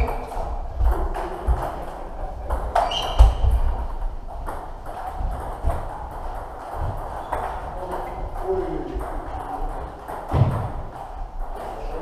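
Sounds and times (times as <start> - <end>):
table tennis balls clicking: 0.0 - 12.0.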